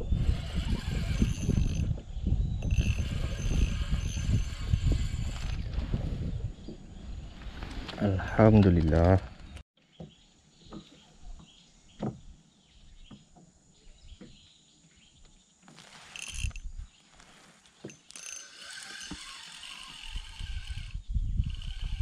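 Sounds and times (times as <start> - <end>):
spinning reel whirring: 0.0 - 1.9, 2.6 - 5.7, 16.1 - 16.6, 17.9 - 22.0.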